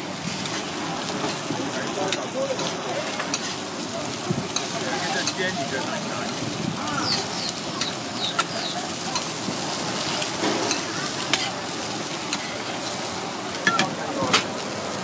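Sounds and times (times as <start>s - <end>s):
eggs sizzling in oil: 0.0s - 15.0s
metal spatula scraping griddle: 0.3s - 1.4s, 2.1s - 3.7s, 9.2s - 13.1s.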